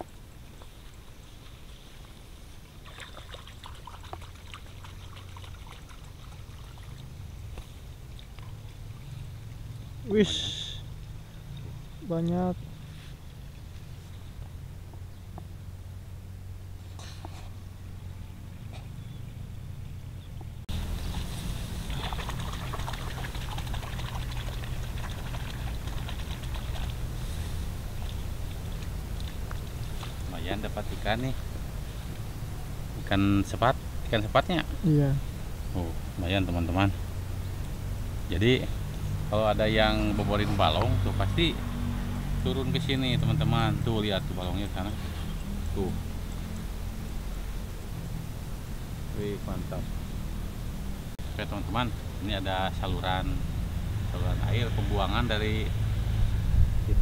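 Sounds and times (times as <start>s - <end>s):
shallow water trickling: 0.0s - 10.0s, 20.7s - 32.8s
small splashes from net: 2.7s - 7.2s, 21.1s - 27.1s
steady low rumble: 42.5s - 57.0s.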